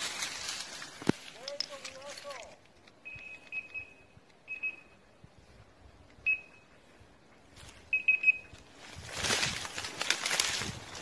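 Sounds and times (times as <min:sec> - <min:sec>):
rustling through tall grass: 0:00.0 - 0:02.6, 0:06.8 - 0:11.0
high electronic beeps: 0:03.0 - 0:05.0, 0:06.2 - 0:06.7, 0:07.9 - 0:08.5.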